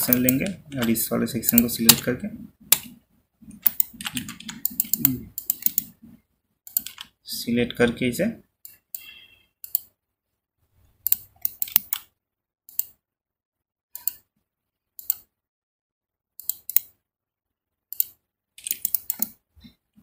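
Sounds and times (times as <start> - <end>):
computer mouse clicking: 0.0 - 2.1, 2.7 - 6.0, 6.7 - 7.2, 8.6 - 9.9, 11.0 - 12.1, 12.7 - 13.0, 14.0 - 14.3, 15.0 - 15.3, 16.4 - 17.0, 17.9 - 19.4.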